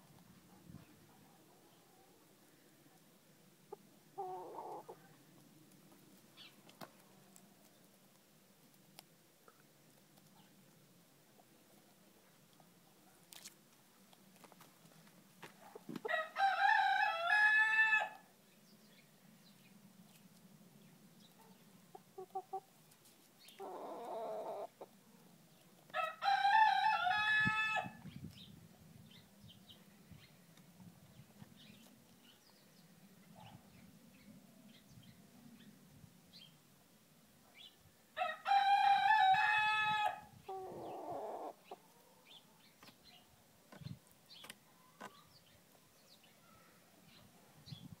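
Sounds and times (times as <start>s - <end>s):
rooster crowing: 16.1s - 18.2s, 26.0s - 28.0s, 38.2s - 40.3s.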